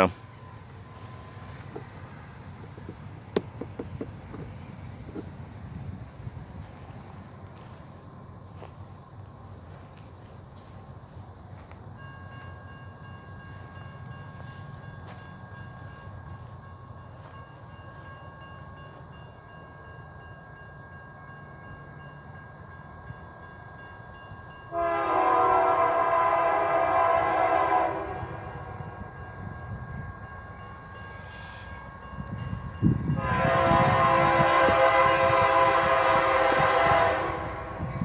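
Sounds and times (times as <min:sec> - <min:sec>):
train rumble: 0:00.0 - 0:38.0
train air horn blast: 0:24.7 - 0:28.9, 0:31.2 - 0:31.9, 0:33.0 - 0:38.0.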